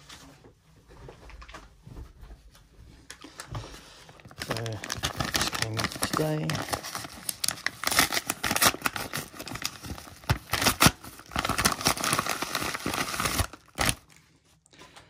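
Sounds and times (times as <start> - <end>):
stiff paper crackling and crinkling: 3.2 - 14.2
paper tearing: 4.4 - 14.0.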